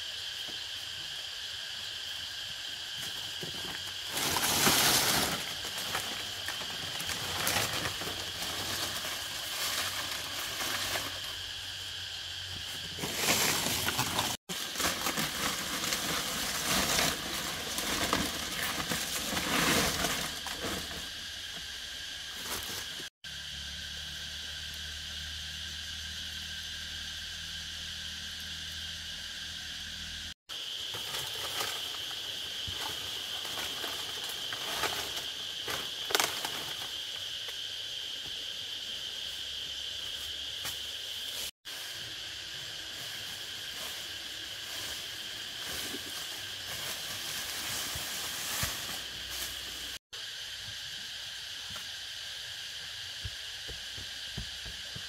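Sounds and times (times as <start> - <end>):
insects chirring: 0.0 - 55.0
rustling and handling noises: 12.8 - 21.1.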